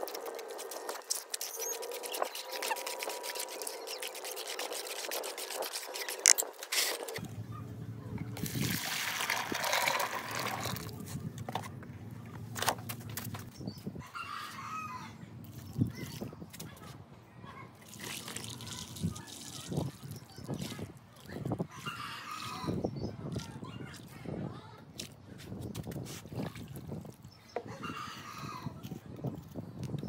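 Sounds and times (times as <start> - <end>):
hand splashing through slurry: 8.4 - 10.9, 17.8 - 20.2
slurry pouring into bucket: 8.4 - 11.0, 17.8 - 20.9.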